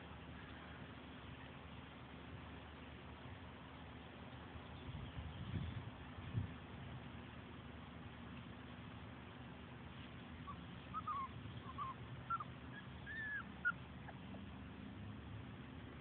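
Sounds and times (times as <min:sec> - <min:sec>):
low steady hum: 0:00.0 - 0:16.0
puppies whining and yipping: 0:10.4 - 0:14.5.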